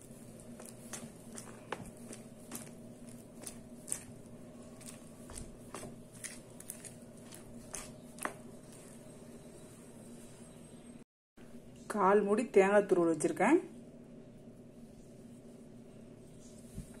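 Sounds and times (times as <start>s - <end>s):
batter squishing: 0.0s - 9.4s
faint steady hum: 0.0s - 17.0s.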